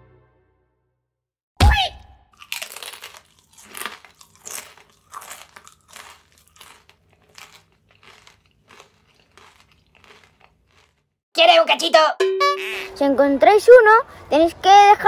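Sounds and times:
chameleon chewing crunches: 0:02.4 - 0:11.1.

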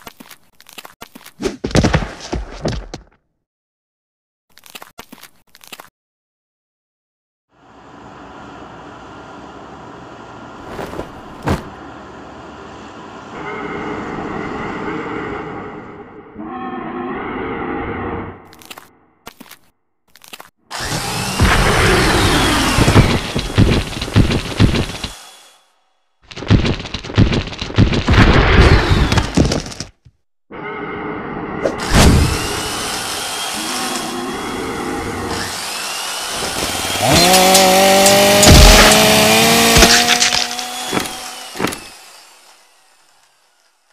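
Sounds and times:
steady mechanical hum: 0:07.6 - 0:16.2
power drills whirring: 0:20.7 - 0:25.7, 0:28.8 - 0:29.4, 0:31.8 - 0:43.9
sharp hits: 0:36.8 - 0:40.9
heavy impact: 0:38.3 - 0:40.1.

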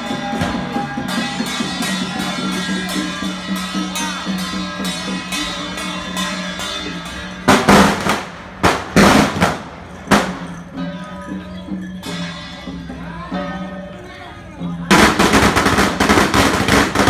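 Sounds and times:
firecrackers bursting: 0:07.5 - 0:10.6, 0:14.9 - 0:17.0.

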